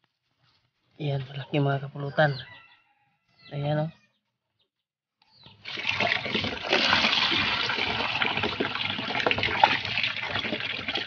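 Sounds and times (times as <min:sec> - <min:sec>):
water pouring and splashing: 0:05.6 - 0:11.0.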